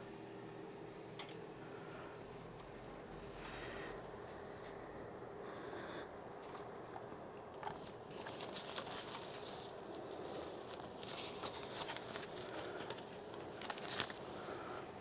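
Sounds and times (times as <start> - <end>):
faint steady hum: 0.0 - 15.0
soft rustling: 7.6 - 15.0.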